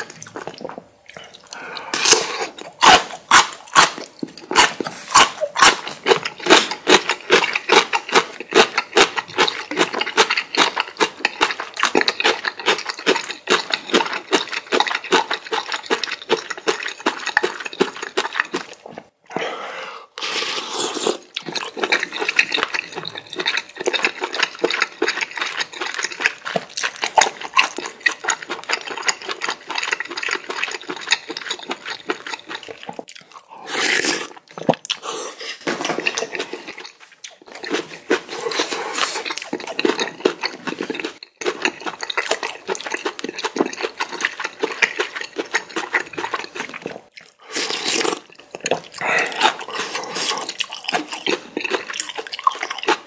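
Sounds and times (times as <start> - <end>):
wet chewing: 0.0 - 19.2, 20.9 - 53.0
noodle slurps: 33.6 - 37.0.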